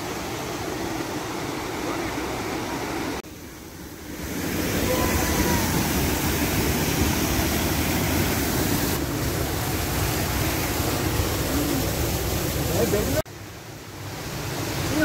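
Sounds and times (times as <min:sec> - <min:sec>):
water gushing from channel: 0:04.0 - 0:13.3.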